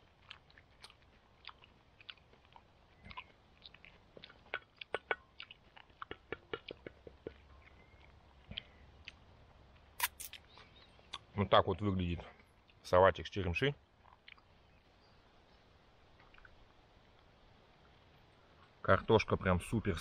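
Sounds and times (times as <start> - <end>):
person chewing crunchy salad: 0.0 - 11.3.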